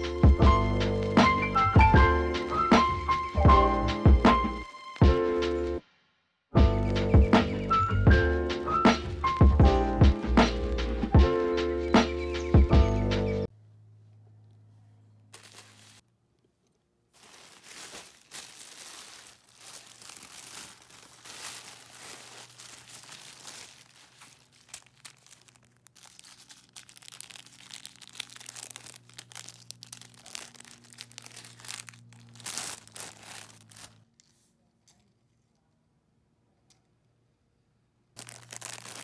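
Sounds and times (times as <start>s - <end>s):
plastic bag and tissue paper rustling: 15.3s - 16.0s, 17.1s - 34.0s, 38.2s - 39.0s.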